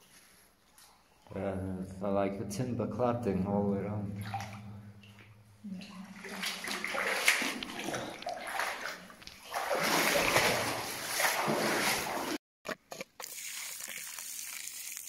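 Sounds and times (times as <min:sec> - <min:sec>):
water splashing and sloshing: 0:04.0 - 0:12.4.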